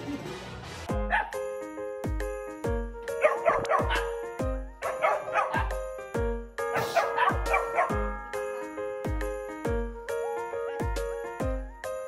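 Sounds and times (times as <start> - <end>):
background music with steady beat: 0.0 - 12.0
dog yapping: 1.1 - 1.4, 3.2 - 4.2, 4.8 - 5.8, 6.7 - 8.0.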